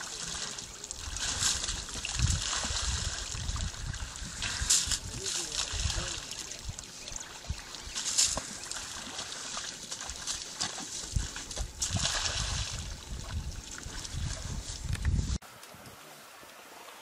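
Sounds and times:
water splashing and sloshing: 0.0 - 17.0.

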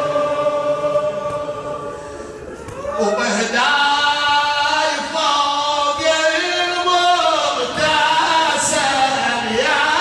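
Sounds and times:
man chanting through a microphone: 3.0 - 10.0.

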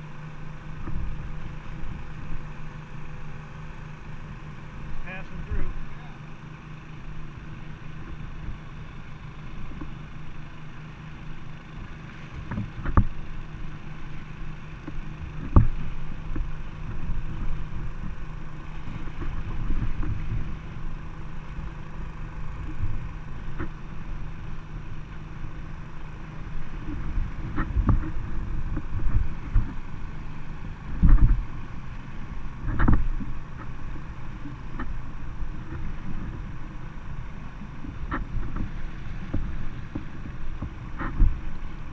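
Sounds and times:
water lapping against inflatable boat: 0.0 - 41.9
thumps and knocks on boat: 12.4 - 13.2, 14.8 - 18.2, 19.0 - 20.6, 26.8 - 29.8, 31.0 - 31.5, 32.7 - 33.8, 37.8 - 41.6.

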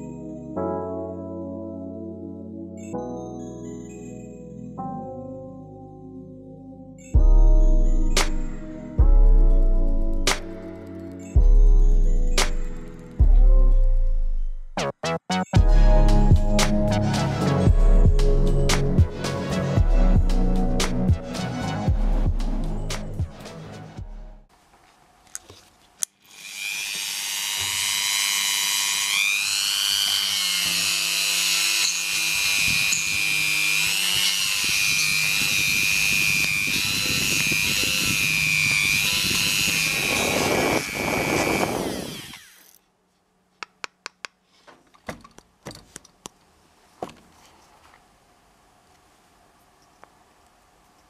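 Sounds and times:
rotary tool whining: 26.0 - 42.8.

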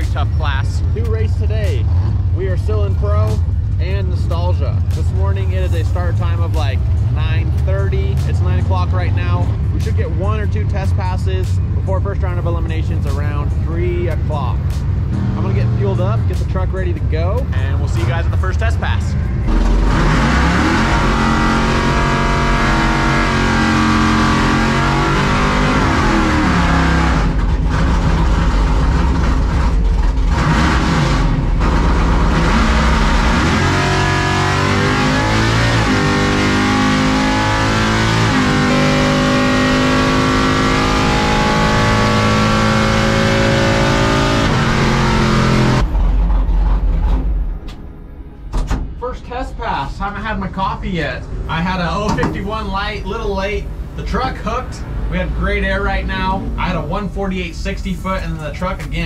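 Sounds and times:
pickup engine revving hard: 19.5 - 45.9.

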